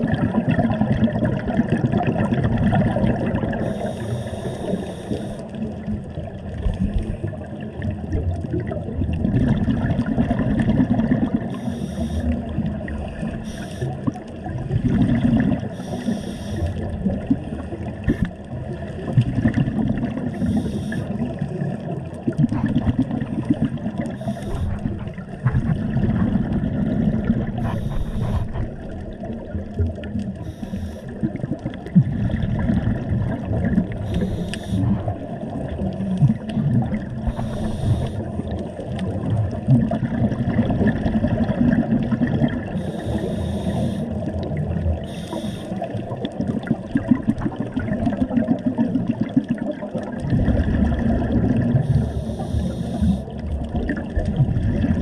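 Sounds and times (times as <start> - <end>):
gurgling exhaled bubbles: 0.0 - 55.0
hissing regulator inhalations: 3.6 - 5.5, 11.5 - 12.4, 13.4 - 14.0, 15.7 - 16.8, 20.3 - 21.2, 24.1 - 25.0, 27.6 - 28.6, 30.4 - 31.2, 34.0 - 35.0, 37.2 - 38.3, 42.8 - 44.3, 45.0 - 45.9, 51.8 - 53.4.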